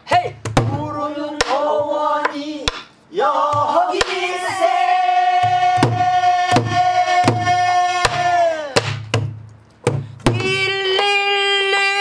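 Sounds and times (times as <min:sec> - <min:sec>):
barrel drum beating: 0:00.4 - 0:00.9, 0:05.4 - 0:10.7
woman singing: 0:00.7 - 0:02.7, 0:10.3 - 0:12.0.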